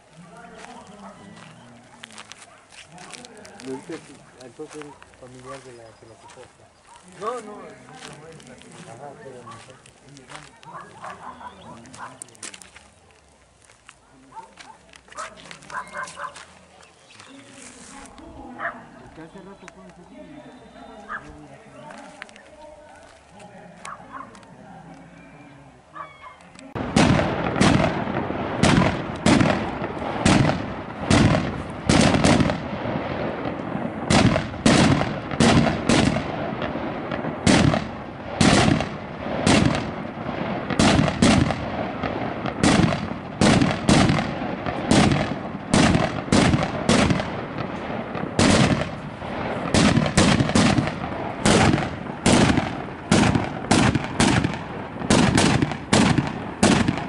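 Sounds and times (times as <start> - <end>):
crackle and hiss of burning powder: 0.0 - 57.0
firework rockets banging: 26.7 - 57.0.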